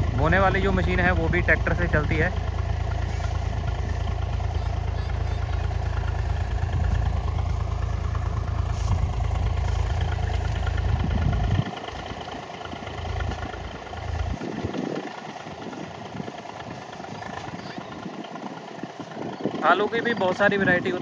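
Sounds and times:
heavy low rumble: 0.0 - 21.0
tractor engine running: 0.0 - 21.0.

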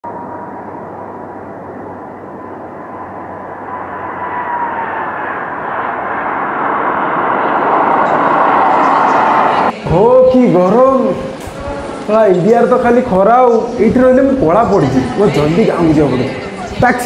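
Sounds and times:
jet roar: 0.0 - 9.8
high jet engine whine: 0.0 - 16.8.

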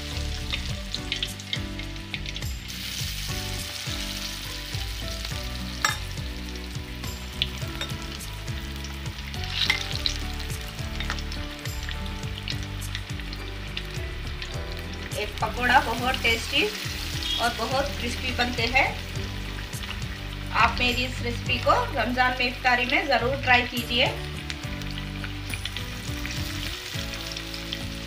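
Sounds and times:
deep-frying sizzle in oil: 0.0 - 28.0.

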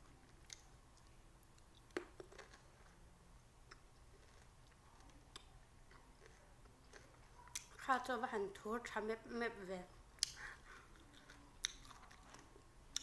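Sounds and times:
lime being bitten and chewed: 3.7 - 7.8, 10.2 - 13.0.

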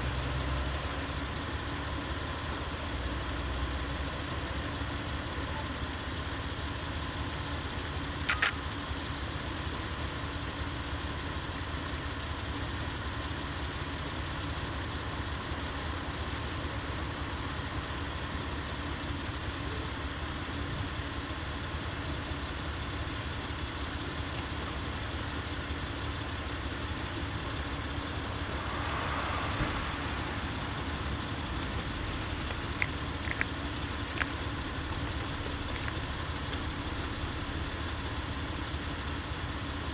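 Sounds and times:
diesel railcar engine idling: 0.0 - 39.9
sharp click: 8.3 - 8.6.

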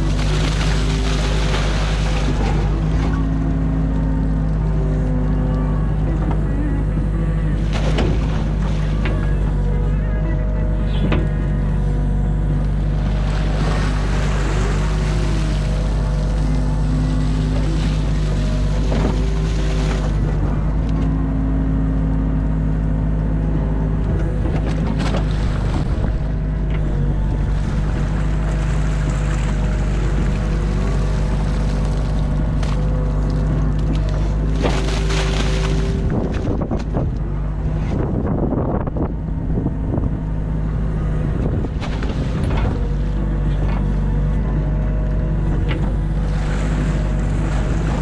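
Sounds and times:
water splashing: 0.0 - 5.0, 7.4 - 9.8, 12.7 - 20.9, 24.6 - 38.1, 40.8 - 43.3, 45.9 - 48.0
excavator bucket working: 0.0 - 48.0
excavator diesel engine running: 0.0 - 48.0
hydraulic whine: 0.0 - 48.0.

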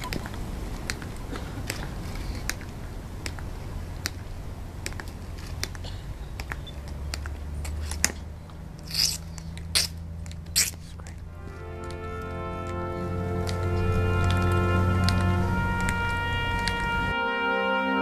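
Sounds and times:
shoes clicking on stone: 0.0 - 17.2
hissing scrape: 8.8 - 10.0
low rumble: 11.1 - 17.2.

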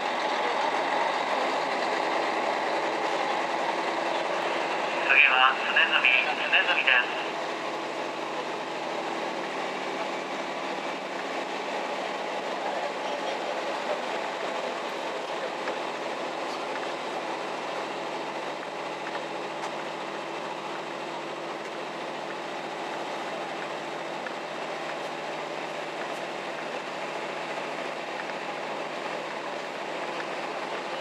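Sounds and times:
railcar engine hum: 0.0 - 31.0
faint clicks from rails: 10.9 - 17.4, 18.2 - 20.4, 21.5 - 31.0.

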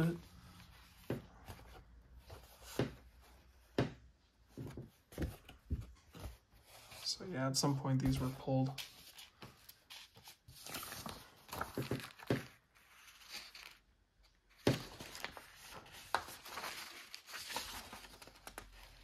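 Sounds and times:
paper rustling: 4.5 - 13.9, 14.5 - 19.0.

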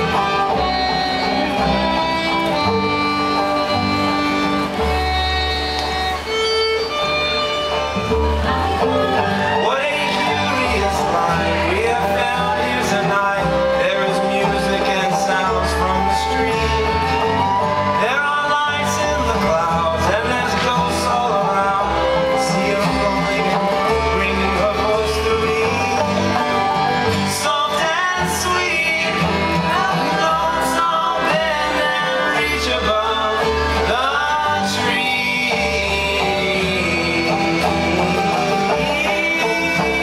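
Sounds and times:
plucked upright bass: 0.0 - 40.0
strummed acoustic guitar: 0.0 - 40.0
people singing: 9.4 - 17.2, 27.2 - 40.0.

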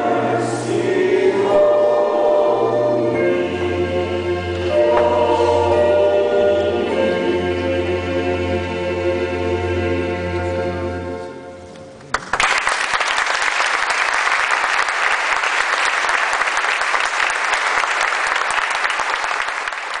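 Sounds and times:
choir holding chord: 0.0 - 11.7
audience applause: 12.1 - 20.0.

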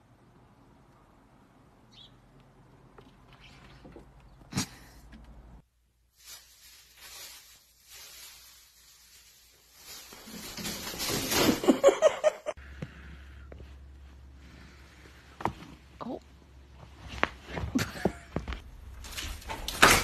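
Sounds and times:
plastic bag rustling and crinkling: 6.0 - 12.0.

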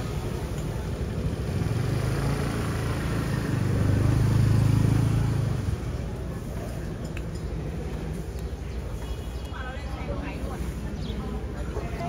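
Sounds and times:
motorbike engine passing by: 1.1 - 6.0.

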